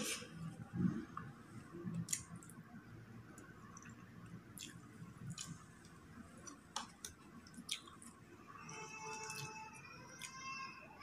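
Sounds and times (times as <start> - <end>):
person chewing: 0.0 - 2.7, 3.3 - 8.3, 9.0 - 9.5.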